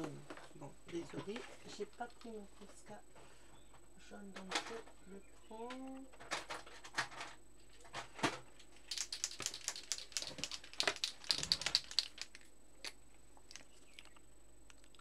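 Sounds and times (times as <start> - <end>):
plastic pens clicking and clattering: 8.8 - 12.5.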